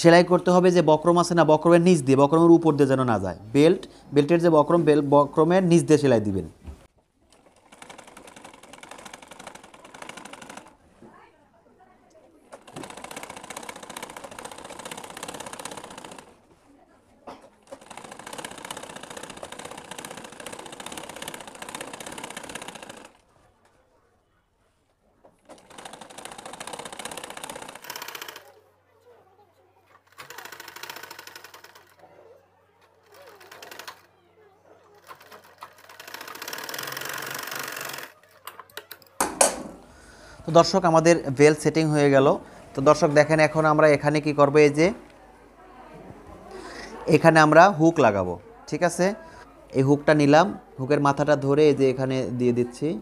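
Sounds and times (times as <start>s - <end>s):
sewing machine stitching: 7.3s - 10.8s, 12.5s - 16.4s, 17.6s - 23.2s, 25.4s - 28.6s, 30.0s - 32.0s, 33.0s - 34.1s, 35.0s - 38.2s.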